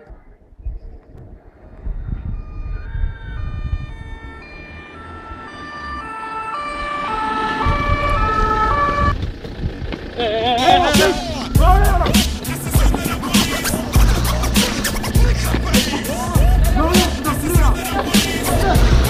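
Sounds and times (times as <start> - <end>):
two-tone emergency siren: 1.8 - 9.2
low rumbling noise: 6.7 - 19.0.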